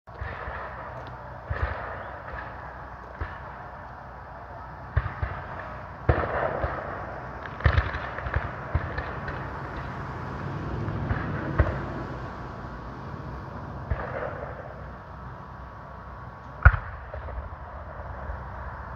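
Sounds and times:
black-powder gunshots: 0:00.1 - 0:12.2, 0:13.8 - 0:15.0, 0:16.6 - 0:18.3
distant gunfire popping: 0:04.9 - 0:10.1.

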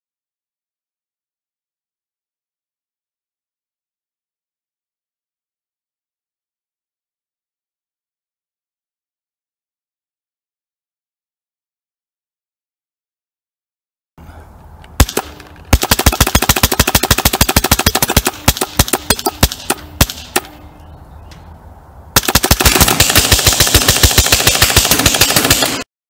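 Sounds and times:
paintball gun firing: 0:15.0 - 0:20.6, 0:22.2 - 0:25.9.

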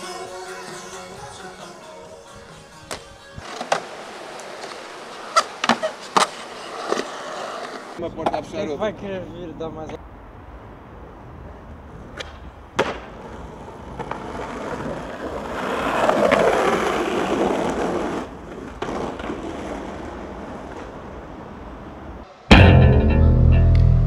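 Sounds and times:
skateboard wheels rolling on asphalt: 0:02.6 - 0:09.1, 0:10.4 - 0:22.2.

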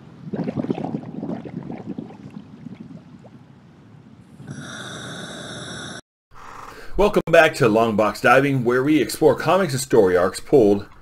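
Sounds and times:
underwater bubbling and gurgling: 0:00.2 - 0:03.5.

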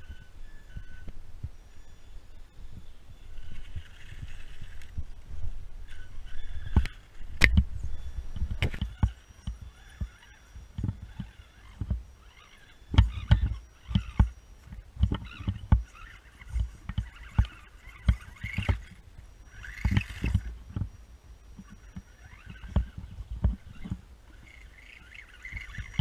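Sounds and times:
thin high motor whine: 0:00.0 - 0:26.0
toy crawler tyres scraping bark: 0:03.2 - 0:05.0, 0:08.5 - 0:26.0.

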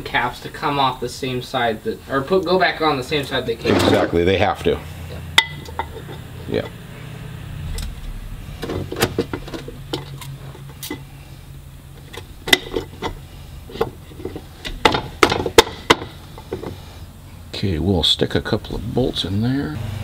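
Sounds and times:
low steady hum: 0:00.0 - 0:20.0
metal knocks and clinks: 0:05.4 - 0:06.7
sharp metal taps: 0:05.4 - 0:06.8, 0:14.6 - 0:16.7.

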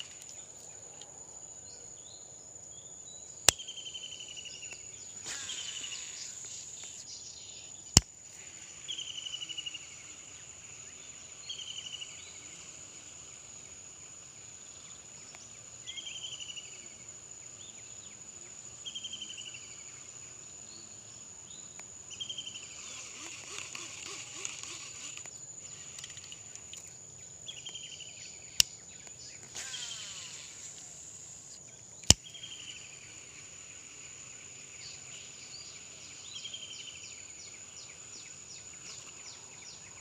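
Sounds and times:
high-pitched insect drone: 0:05.1 - 0:18.1, 0:18.8 - 0:28.7, 0:29.3 - 0:40.0
sharp clicks: 0:22.8 - 0:26.9, 0:28.6 - 0:32.4.

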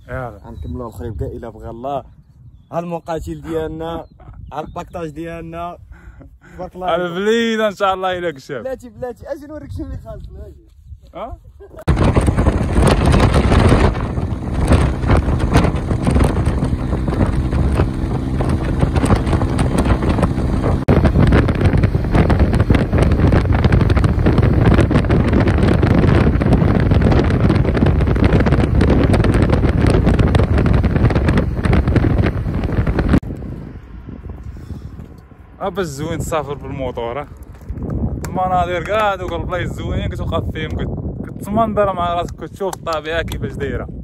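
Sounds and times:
wind buffeting the microphone: 0:00.0 - 0:44.0
motorcycle running: 0:11.9 - 0:35.6.

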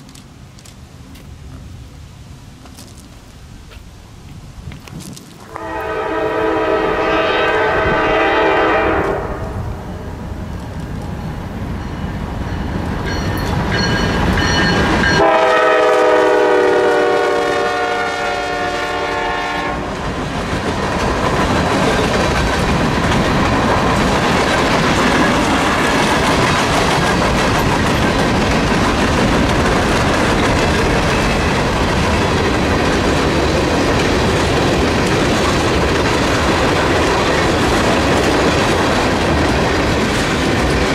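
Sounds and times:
train horn blasts: 0:05.4 - 0:09.9, 0:15.1 - 0:19.9
freight cars rumbling: 0:19.9 - 0:40.9
wheels clacking over rail joints: 0:20.0 - 0:40.9.

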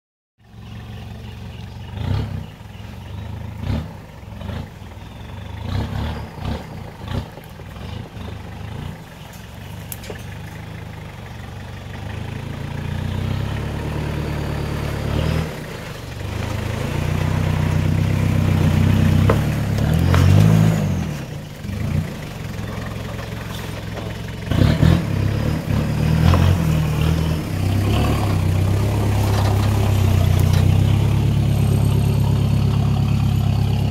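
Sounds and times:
truck engine revving: 0:00.8 - 0:33.9
knocks and clunks: 0:18.6 - 0:20.7.

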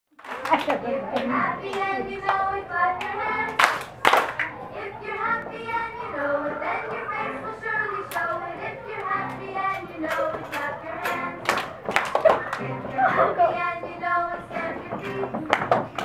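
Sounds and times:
sharp hand claps: 0:00.1 - 0:02.4, 0:03.0 - 0:04.5, 0:10.1 - 0:12.7, 0:15.0 - 0:16.0
song with singing: 0:00.7 - 0:16.0.

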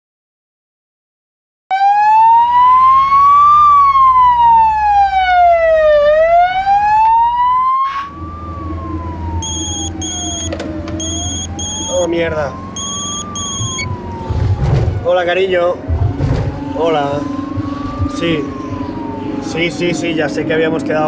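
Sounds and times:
ambulance siren wailing: 0:01.7 - 0:21.0
low vehicle hum: 0:02.4 - 0:21.0
mobile phone ringing beeps: 0:09.4 - 0:12.1, 0:12.7 - 0:13.9.

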